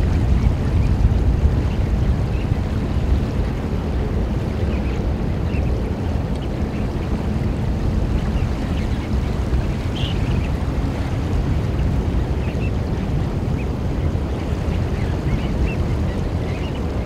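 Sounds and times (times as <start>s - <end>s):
shore water: 0.0s - 17.0s
wind: 0.0s - 17.0s
shorebird calls: 4.5s - 17.0s.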